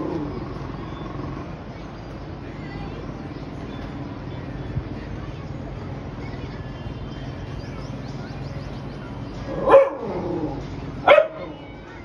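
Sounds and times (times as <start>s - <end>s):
low background hum: 0.0s - 12.0s
dog barking: 9.5s - 10.1s, 11.0s - 11.5s.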